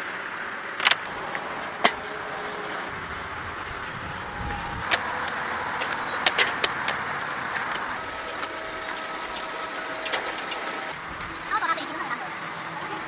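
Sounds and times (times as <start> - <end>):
farm machinery running: 0.0 - 13.0
sharp clicks and clanks: 0.8 - 2.0, 4.8 - 11.4.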